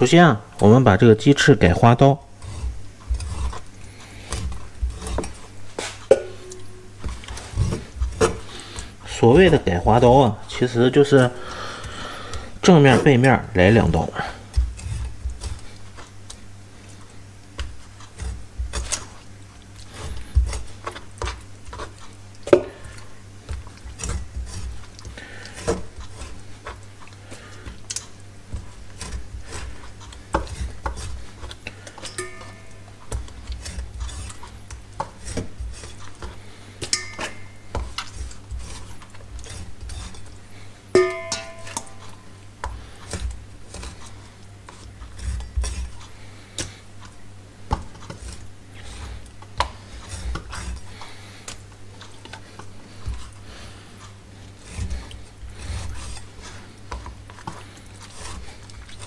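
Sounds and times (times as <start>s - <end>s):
metallic clinks from bowl: 36.9s - 37.6s, 41.0s - 42.0s.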